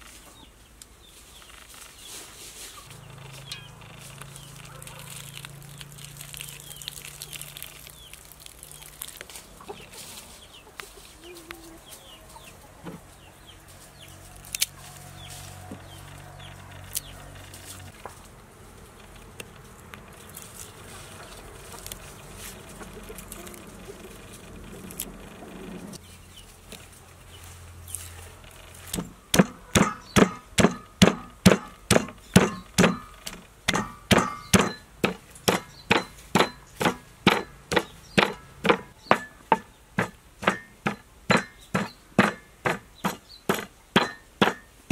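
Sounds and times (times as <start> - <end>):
chickens clucking: 0.0 - 6.0, 7.9 - 27.5
wooden pestle pounding in mortar: 29.0 - 44.7.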